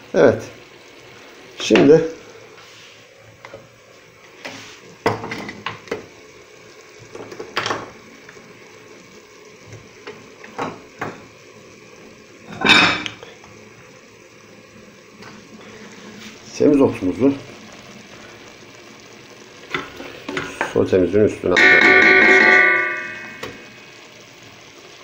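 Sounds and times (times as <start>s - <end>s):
metal bowl and glass lid clinking: 21.6s - 23.6s.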